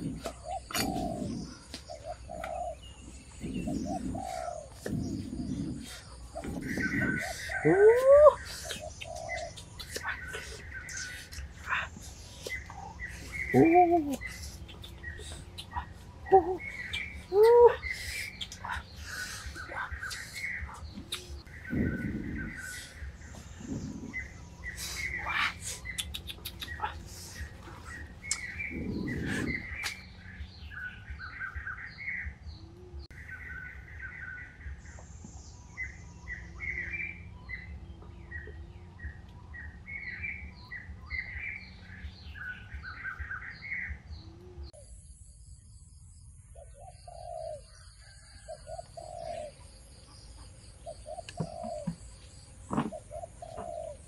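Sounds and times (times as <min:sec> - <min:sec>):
dove cooing: 0:00.0 - 0:29.8, 0:46.6 - 0:49.6, 0:50.8 - 0:52.1, 0:52.7 - 0:54.0
forest birds chirping: 0:00.0 - 0:54.0
person blowing on a fire: 0:28.7 - 0:29.9.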